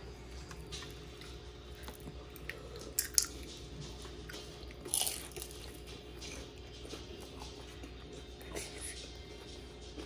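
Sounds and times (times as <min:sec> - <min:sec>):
crunching bites of fried food: 0:04.8 - 0:05.6.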